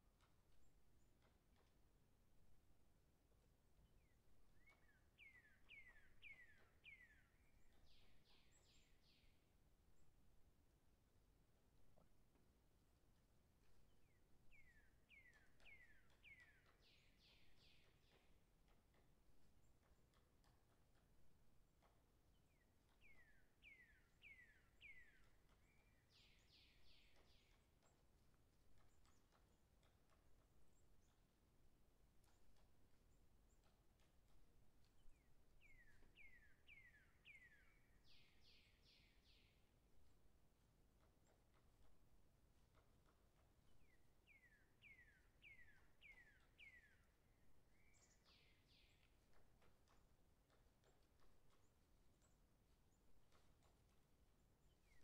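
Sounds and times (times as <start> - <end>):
faint whistled bird calls: 4.0 - 9.3, 14.1 - 18.3, 23.0 - 27.6, 35.2 - 39.6, 43.8 - 49.1.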